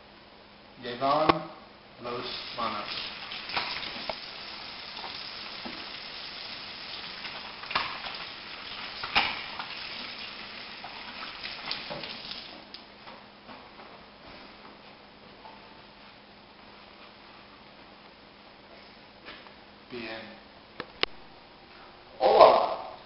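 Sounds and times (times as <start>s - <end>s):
faucet running into sink: 2.4s - 12.6s
hands washing under water: 2.4s - 12.6s.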